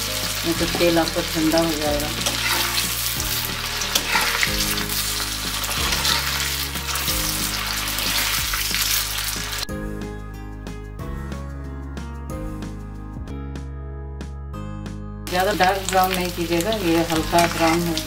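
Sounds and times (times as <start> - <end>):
battered florets sizzling in oil: 0.0 - 9.7, 15.3 - 18.0
background music: 0.0 - 18.0
metal spatula turning food: 2.0 - 9.6.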